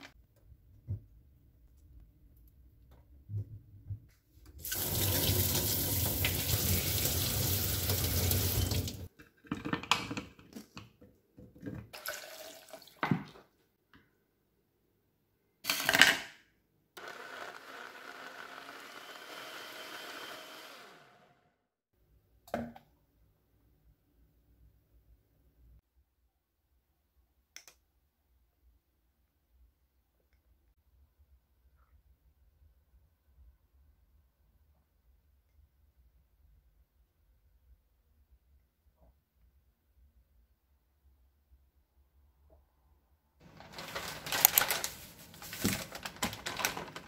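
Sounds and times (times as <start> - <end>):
blender whirring: 17.0 - 21.6.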